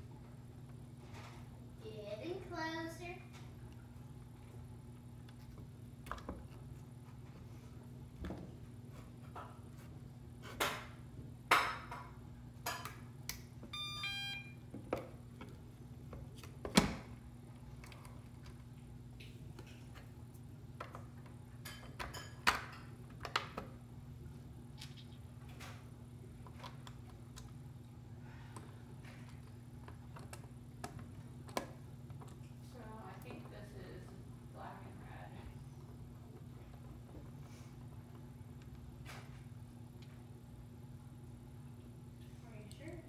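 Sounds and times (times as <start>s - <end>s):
faint low hum: 0.0s - 43.0s
short electronic beeps: 13.7s - 14.6s.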